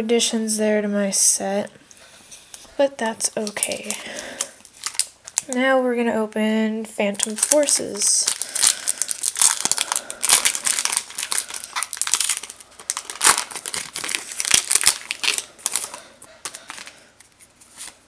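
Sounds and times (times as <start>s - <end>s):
foil wrapper crinkling and tearing: 3.4s - 5.6s, 7.2s - 18.0s.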